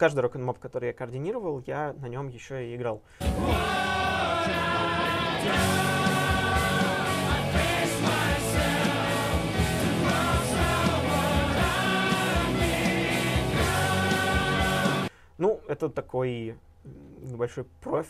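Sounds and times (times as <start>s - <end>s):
rock music with singing: 3.2s - 15.1s
steady drum beat: 3.2s - 15.1s.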